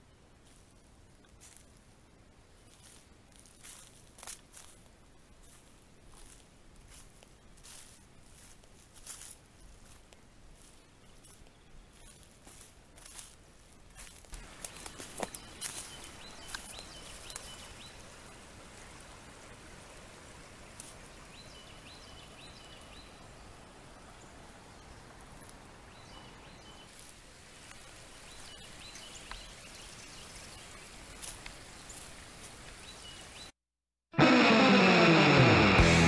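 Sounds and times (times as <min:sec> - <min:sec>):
steady hiss: 0:12.2 - 0:33.4.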